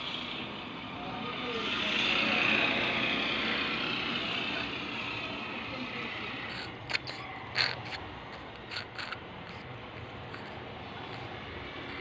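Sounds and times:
metal parts clicking: 6.5s - 12.0s.

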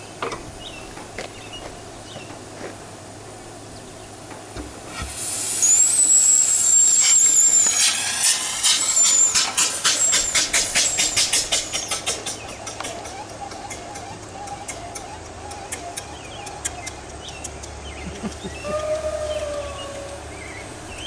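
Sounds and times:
steam exhaust chuffs: 4.4s - 21.0s
steam hiss with squeal: 4.9s - 12.1s.

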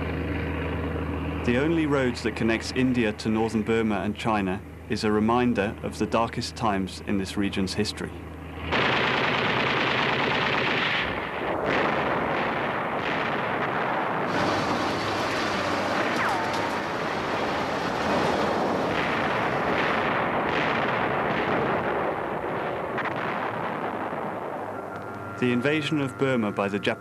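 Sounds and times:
artillery fire and explosions: 8.5s - 26.4s.

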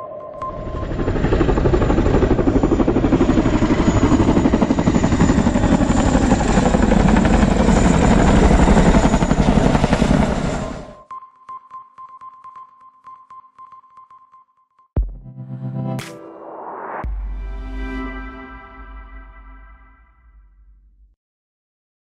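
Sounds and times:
high turbine whine: 0.0s - 11.0s
helicopter blade chop: 0.4s - 10.9s.

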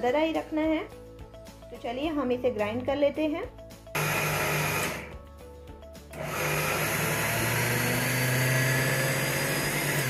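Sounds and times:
mixer grinder motor: 3.9s - 5.2s, 6.1s - 10.0s.

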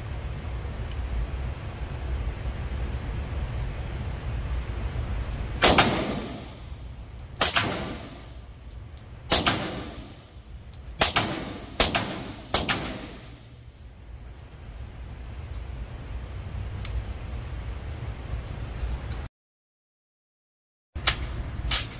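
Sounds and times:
suppressed gunshots indoors: 5.6s - 13.8s.

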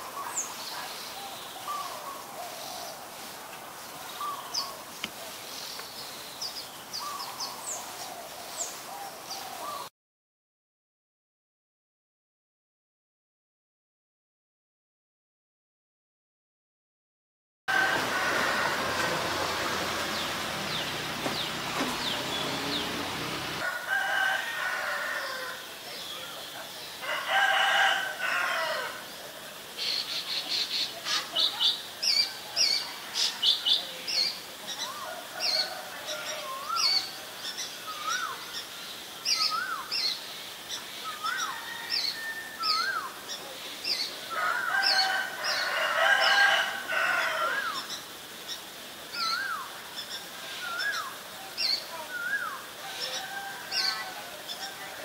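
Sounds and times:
small birds chirping: 0.0s - 9.9s, 19.3s - 23.6s, 47.7s - 55.0s
rooster crowing: 17.7s - 25.7s, 27.0s - 29.1s, 35.0s - 37.2s, 41.2s - 43.1s, 44.3s - 47.9s, 52.8s - 55.0s.

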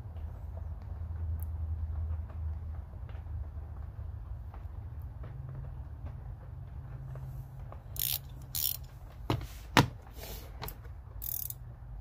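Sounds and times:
ratcheting wrench clicking: 7.9s - 8.9s, 10.6s - 11.6s.

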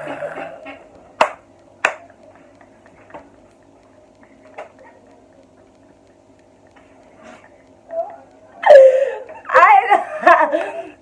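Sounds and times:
hand claps: 1.2s - 2.1s.

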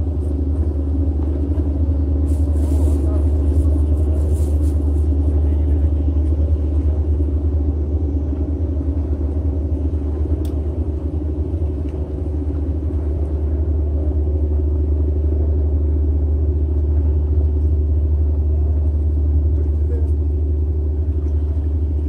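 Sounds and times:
faint click: 10.4s - 10.6s.

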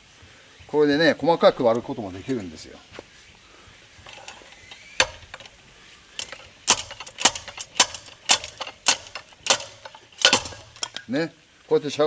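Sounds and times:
drop weight metallic clanks: 4.0s - 5.6s, 6.2s - 11.2s.

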